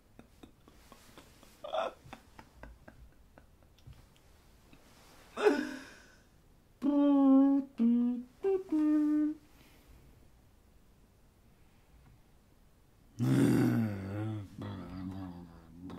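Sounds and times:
man humming: 1.6s - 2.9s, 6.8s - 9.5s, 13.2s - 15.9s
breathy vocal outburst: 13.2s - 14.9s.

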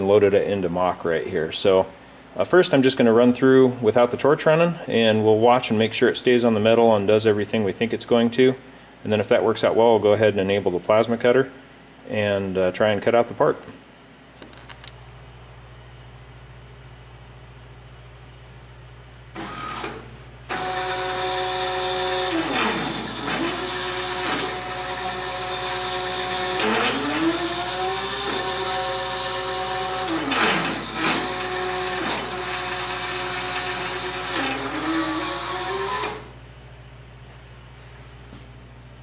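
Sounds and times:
stepper motors whining: 20.5s - 36.3s.

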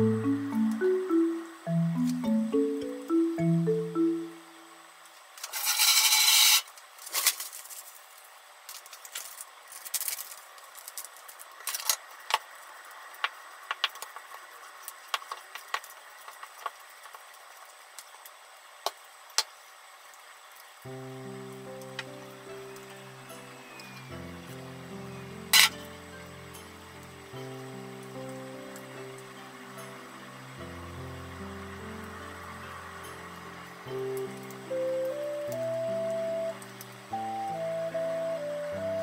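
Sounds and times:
music: 0.0s - 4.8s, 20.9s - 39.0s
loud rustling hiss: 0.0s - 39.0s
spatula scraping metal bowl: 5.6s - 6.6s.

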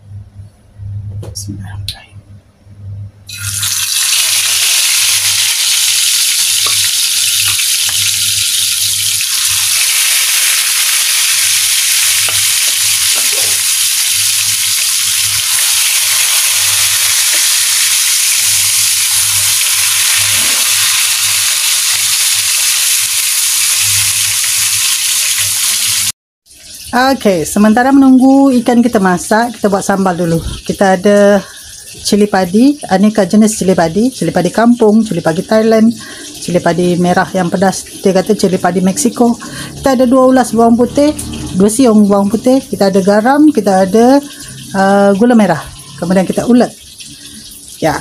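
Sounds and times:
fish sizzling in hot oil: 3.3s - 27.0s, 41.2s - 48.0s.

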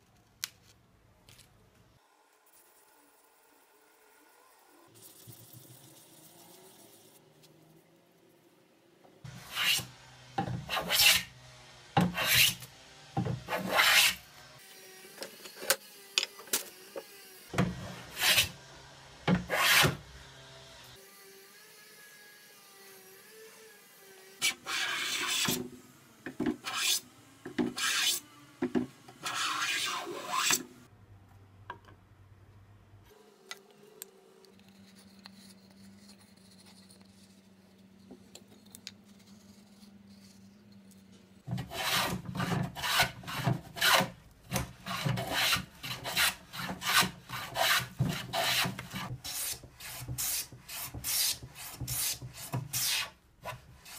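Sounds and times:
hand plane rasping on wood: 41.5s - 53.9s.

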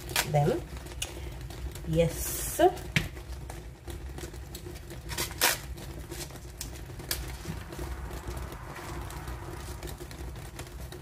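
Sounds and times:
cabbage leaves crackling and tearing: 0.0s - 1.4s, 4.6s - 10.3s
low steady rumble: 0.0s - 11.0s.

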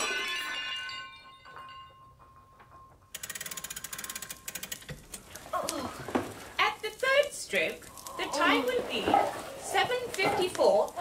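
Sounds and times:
ringing tones after crash: 0.0s - 3.2s
clock mechanism whirring clicks: 3.1s - 5.4s.

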